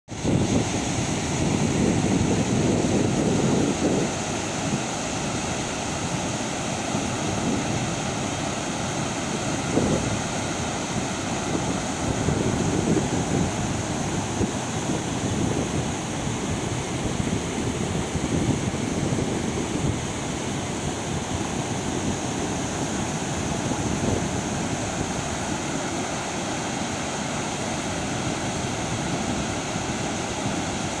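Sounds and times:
waterfall rushing: 0.1 - 31.0.

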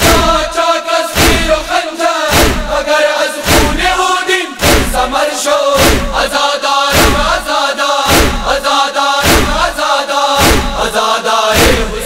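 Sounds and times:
men chanting in unison: 0.0 - 12.0
chest-beating strikes: 2.3 - 2.8, 3.4 - 4.0, 6.9 - 7.4, 8.1 - 8.5, 9.2 - 9.8, 10.4 - 10.8.

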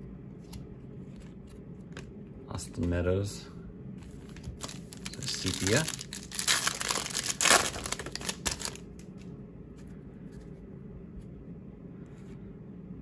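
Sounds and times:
faint steady hum: 0.0 - 13.0
foil wrapper crinkling: 4.5 - 9.1.

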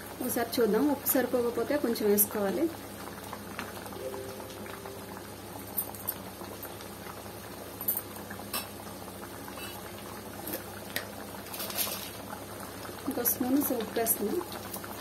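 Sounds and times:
curry bubbling: 0.0 - 15.0.

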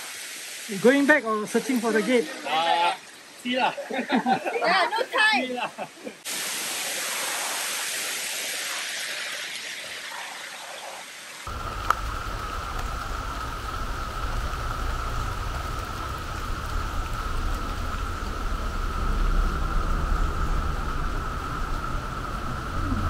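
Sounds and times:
rain on foliage: 0.0 - 23.0
low rumble: 11.5 - 23.0
high-pitched drone: 17.8 - 23.0.

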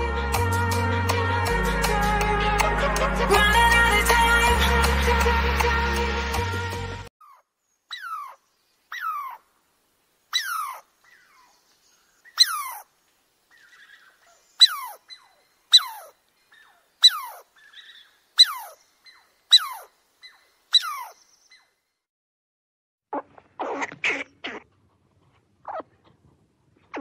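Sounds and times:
squirrel chirping: 7.2 - 9.4, 10.3 - 12.9, 13.5 - 21.7, 25.6 - 25.9.

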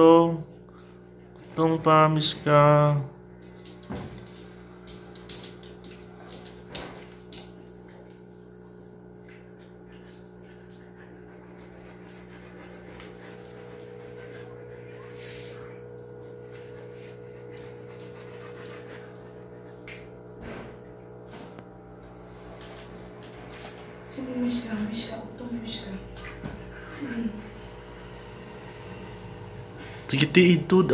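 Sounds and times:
steady low hum: 0.0 - 30.9
dog panting: 9.8 - 19.9.

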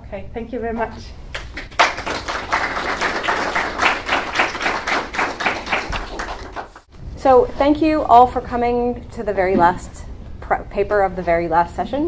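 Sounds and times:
audience applauding: 1.4 - 6.9.

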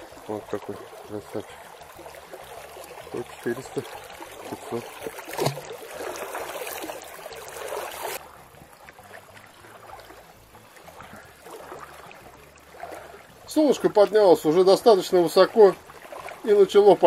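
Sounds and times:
fish splashing: 0.0 - 17.0
river water: 0.0 - 17.0.

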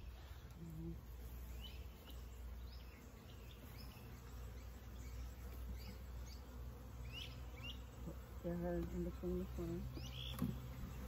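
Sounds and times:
honeybees humming: 0.0 - 11.0
bird chirps: 1.5 - 8.0, 9.9 - 11.0.

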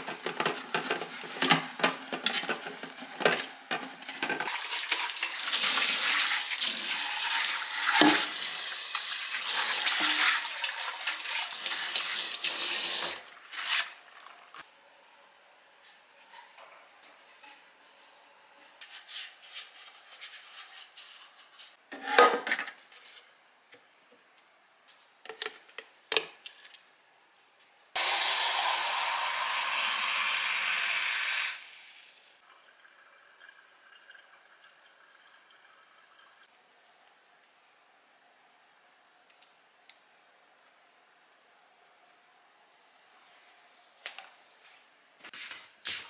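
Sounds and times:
tap water rushing into pitcher: 4.5 - 13.3.

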